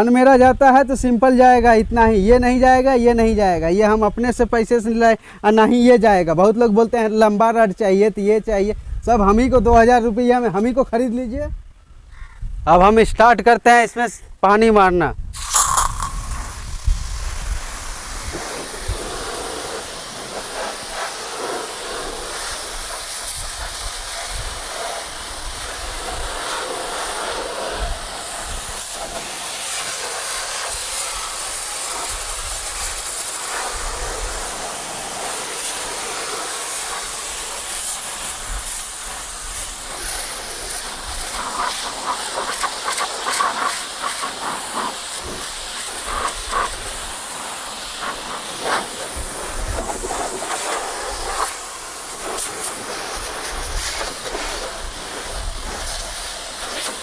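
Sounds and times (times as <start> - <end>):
pressure washer spray hissing: 15.4 - 57.0.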